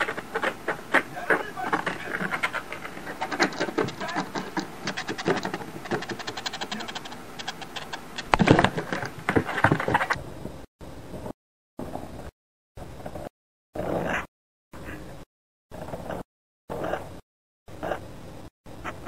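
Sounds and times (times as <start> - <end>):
stick scratching back and forth: 0.0 - 10.2.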